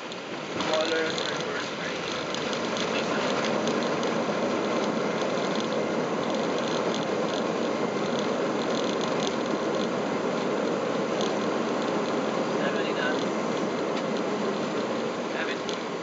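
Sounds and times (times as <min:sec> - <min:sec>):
engine and runway rush: 0:00.0 - 0:16.0
fine rapid rattle: 0:00.6 - 0:15.9.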